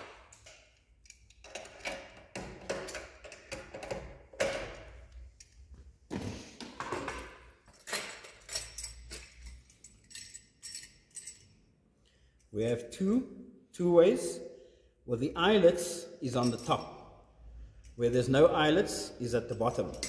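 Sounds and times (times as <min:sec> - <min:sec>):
metal clinks and rattles: 0:00.3 - 0:05.5, 0:07.0 - 0:11.7, 0:16.4 - 0:17.1, 0:19.8 - 0:20.0.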